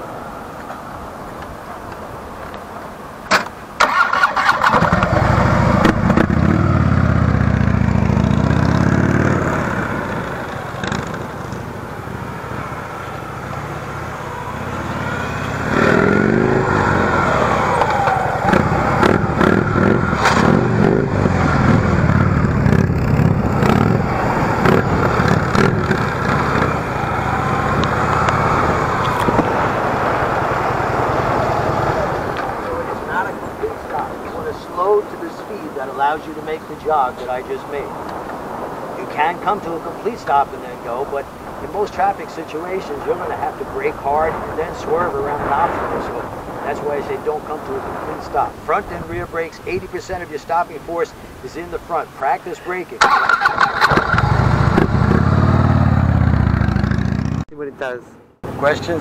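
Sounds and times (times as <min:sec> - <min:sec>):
motorcycle accelerating: 0:03.8 - 0:35.3, 0:53.0 - 0:57.6.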